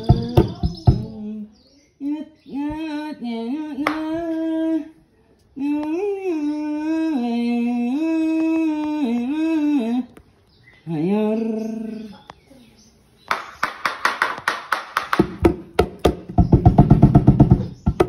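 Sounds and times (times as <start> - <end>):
person singing slow melody: 0.0 - 12.7.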